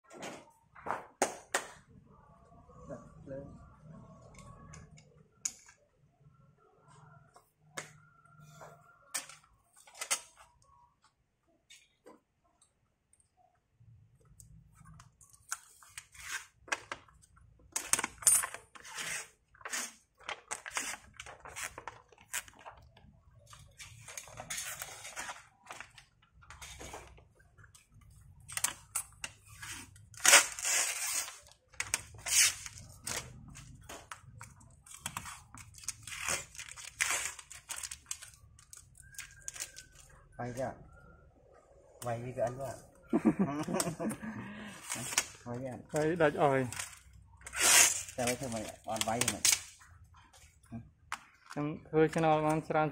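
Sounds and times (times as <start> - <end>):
plastic film crackling: 19.6 - 26.6, 28.0 - 40.2, 44.8 - 49.9.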